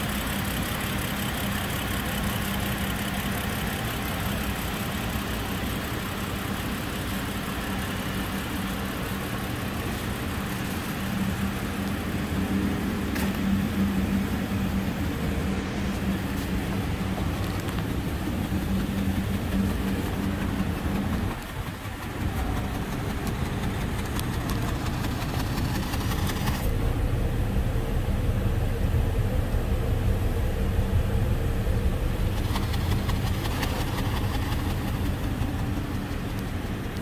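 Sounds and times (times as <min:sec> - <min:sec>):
car engine idling: 0:00.0 - 0:37.0.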